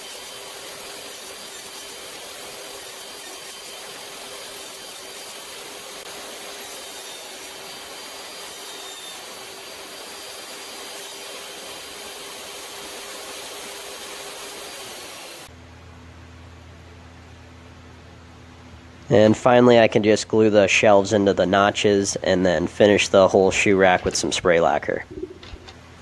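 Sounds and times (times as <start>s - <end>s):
table saw whining: 0.0s - 15.5s
steady low hum: 15.4s - 26.0s.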